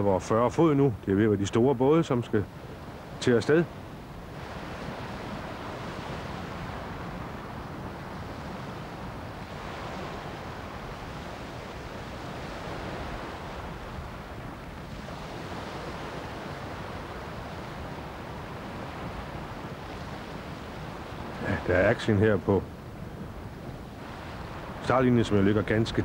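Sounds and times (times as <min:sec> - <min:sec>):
choppy waves splashing: 0:00.0 - 0:26.0
wind on microphone: 0:00.9 - 0:26.0.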